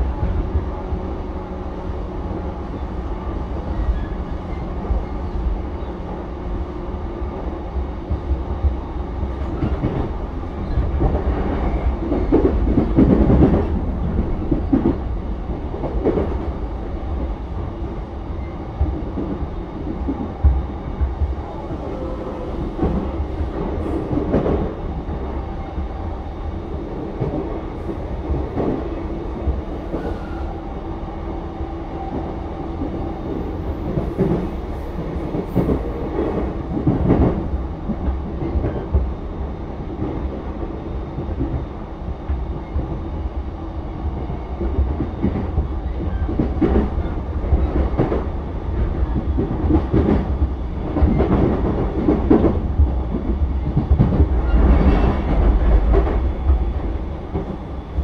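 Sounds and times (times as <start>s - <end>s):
train wheels rumbling on rails: 0.0s - 58.0s
track clacks: 7.8s - 18.0s, 31.5s - 43.2s, 44.1s - 58.0s.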